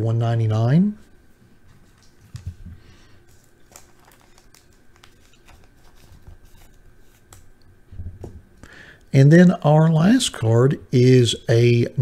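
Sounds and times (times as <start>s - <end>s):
plastic sleeve crinkling: 1.7s - 7.6s.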